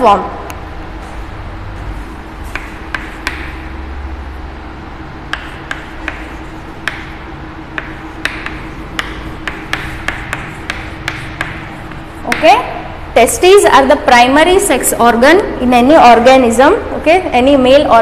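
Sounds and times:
low room hum: 0:00.0 - 0:18.0
chalk tapping on chalkboard: 0:01.8 - 0:03.7, 0:05.3 - 0:12.8.

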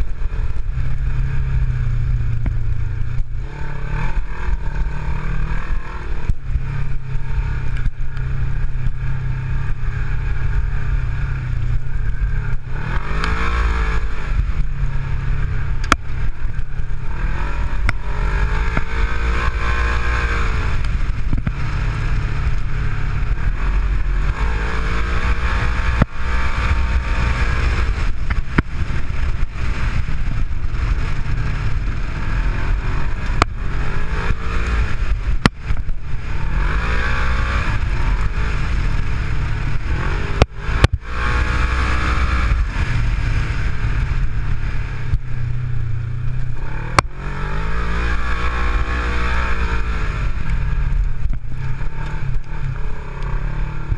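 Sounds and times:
off-road vehicle engine revving: 0:00.0 - 0:53.9
knocks and rattles on rough track: 0:06.2 - 0:42.1.

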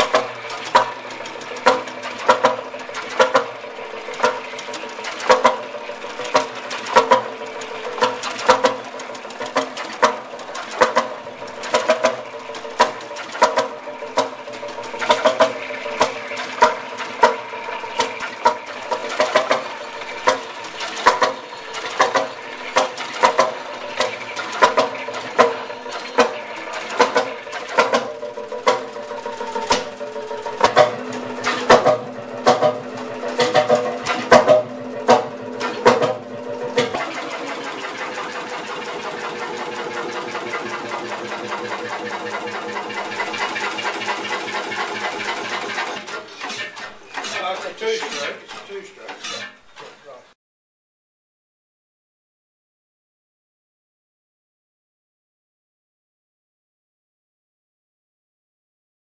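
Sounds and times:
two-stroke tractor engine running: 0:00.0 - 0:50.3.

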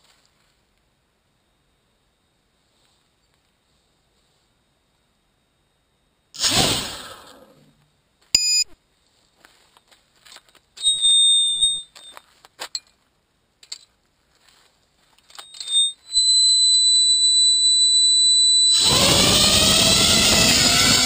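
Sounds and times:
high-pitched electronic buzzer beeping: 0:08.4 - 0:08.8, 0:10.8 - 0:12.0, 0:15.4 - 0:21.0.

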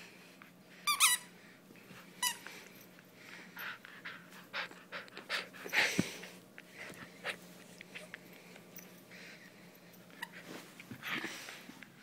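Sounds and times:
puppy breathing noises: 0:00.0 - 0:12.0.

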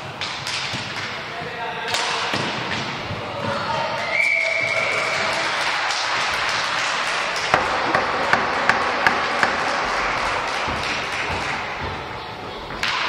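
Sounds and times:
background din in a hall: 0:00.0 - 0:13.0.

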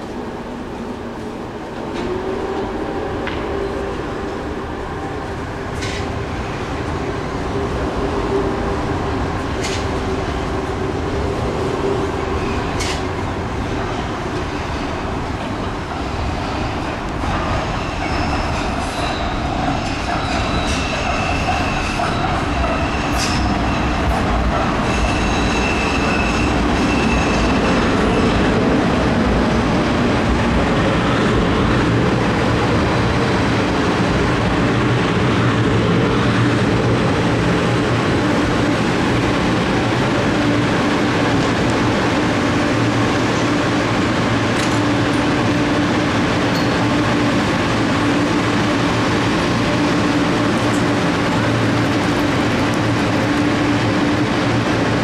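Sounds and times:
standing train humming: 0:00.0 - 0:55.0
train wheel and brake squeal: 0:17.7 - 0:24.2, 0:24.8 - 0:28.4.

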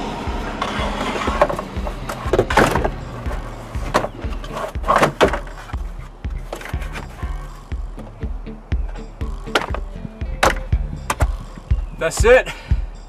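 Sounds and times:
background music: 0:00.0 - 0:13.0
plastic shelf scraping and knocking: 0:00.6 - 0:07.5.

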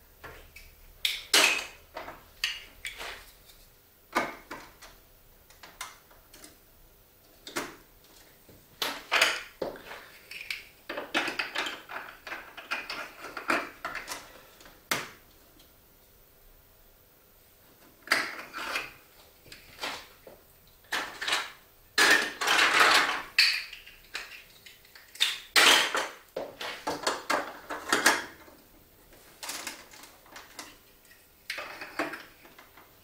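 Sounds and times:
plastic marble run clattering: 0:20.9 - 0:23.3.

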